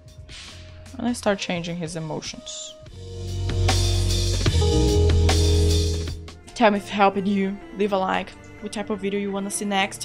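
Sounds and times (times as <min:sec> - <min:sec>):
music with deep bass and drums: 0:02.9 - 0:06.5.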